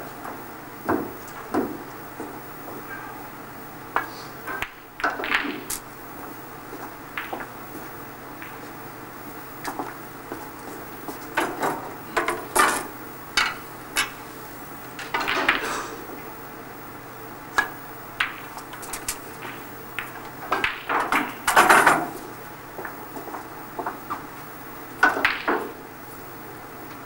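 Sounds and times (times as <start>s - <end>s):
snooker balls clicking: 3.9s - 14.2s, 14.9s - 16.3s, 17.5s - 25.8s.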